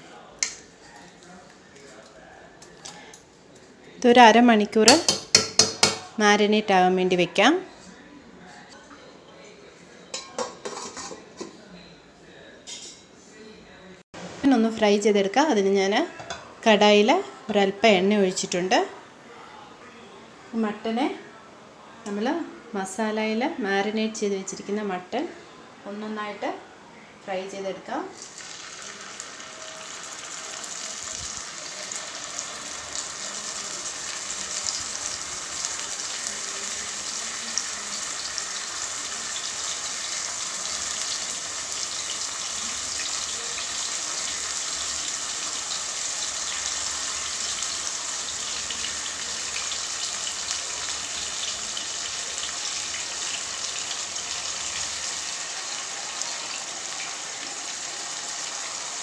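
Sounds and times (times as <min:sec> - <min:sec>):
meat sizzling in hot oil: 0:28.2 - 0:59.0.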